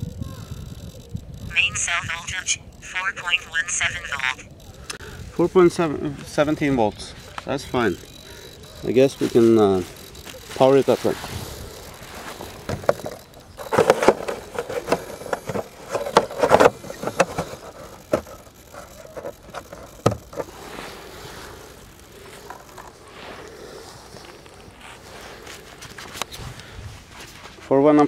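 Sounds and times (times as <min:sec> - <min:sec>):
rustling: 0:06.2 - 0:27.8
clicks knocks and scraping: 0:11.8 - 0:20.6.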